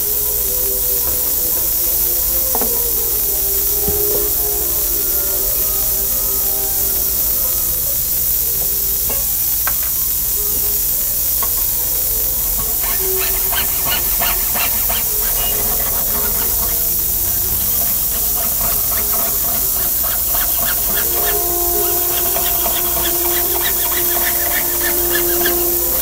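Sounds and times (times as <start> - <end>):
steady hiss: 0.0 - 26.0
saw cutting sheet metal: 12.6 - 26.0.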